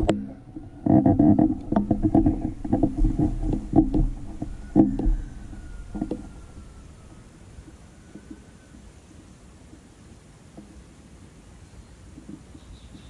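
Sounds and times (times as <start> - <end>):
motor engine knocking: 0.0 - 6.8.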